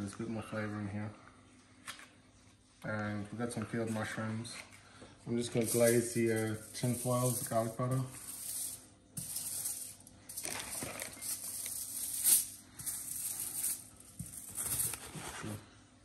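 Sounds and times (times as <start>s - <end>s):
wrapper scraping on foil: 5.6s - 15.6s.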